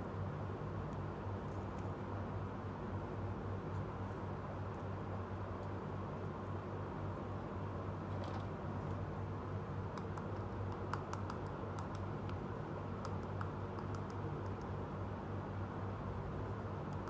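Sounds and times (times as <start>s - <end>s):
steady low hum: 0.0s - 17.0s
plastic toy clicks and taps: 10.0s - 12.4s.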